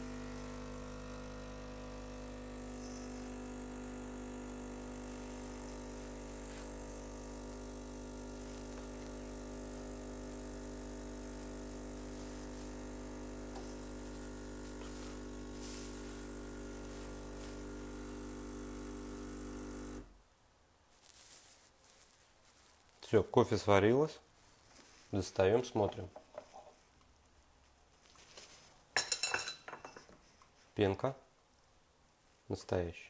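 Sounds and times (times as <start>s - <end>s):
espresso machine pump humming: 0.0s - 20.1s.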